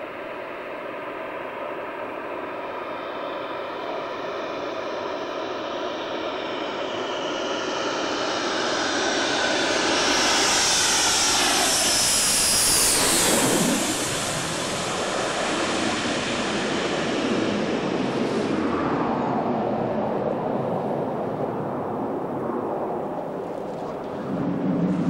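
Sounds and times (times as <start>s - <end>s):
jet engines whining overhead: 0.0s - 25.0s.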